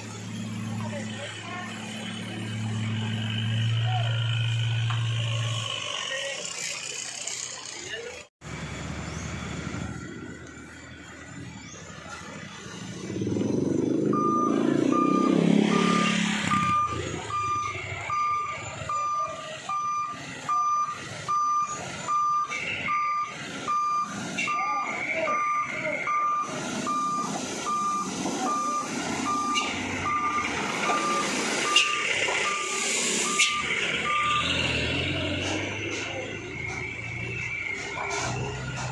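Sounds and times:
truck engine running: 0.0 - 38.9
truck warning beeper: 13.9 - 38.5.

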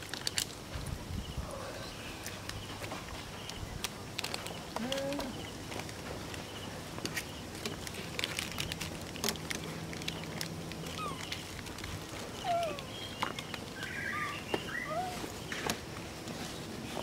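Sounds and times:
sharp clicks and crackles: 0.0 - 1.0, 2.2 - 14.6
baby monkey squeaking calls: 13.8 - 15.3.

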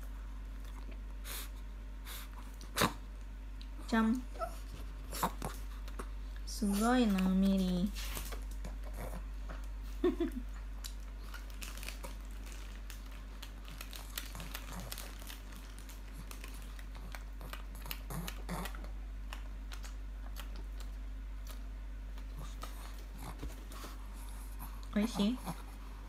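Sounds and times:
dog chewing with wet smacks: 10.6 - 25.6.

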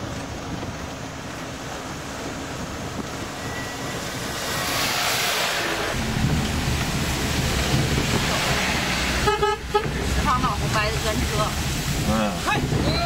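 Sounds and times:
deep engine rumble: 0.0 - 13.0
road and engine noise inside vehicle: 0.0 - 13.0
truck passing close by: 2.4 - 12.2.

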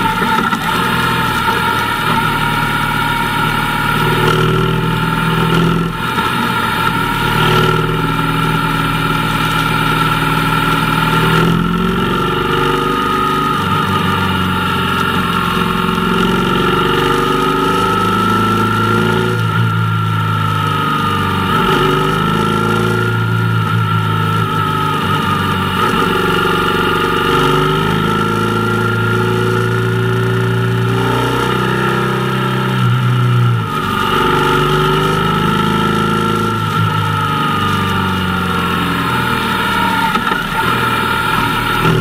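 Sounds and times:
motorcycle engine revving: 0.0 - 42.0.

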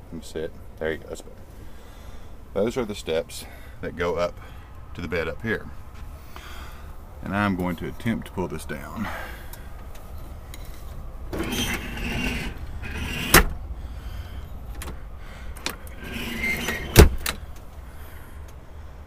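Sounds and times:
steady low rumble: 0.0 - 19.0
rustling and sliding: 10.1 - 13.6, 15.7 - 17.2.

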